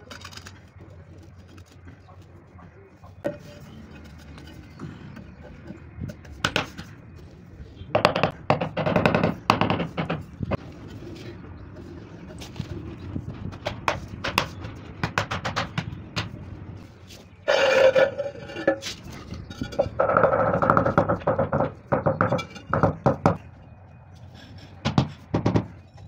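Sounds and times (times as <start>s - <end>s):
rough scraping: 16.8s - 22.8s.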